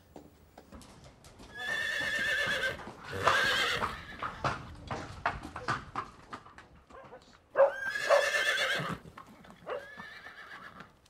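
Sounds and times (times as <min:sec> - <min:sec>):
hooves clip-clopping on hard floor: 0:00.0 - 0:07.6
pony whinnying: 0:01.5 - 0:04.3, 0:07.6 - 0:09.0, 0:09.6 - 0:10.9.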